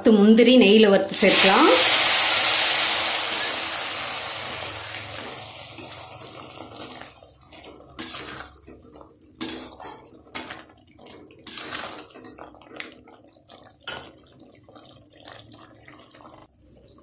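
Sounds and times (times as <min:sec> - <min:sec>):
ghee sizzling in a pan: 0:01.1 - 0:17.0
spoon scraping a steel pan: 0:08.0 - 0:08.5, 0:09.4 - 0:10.5, 0:11.4 - 0:12.4.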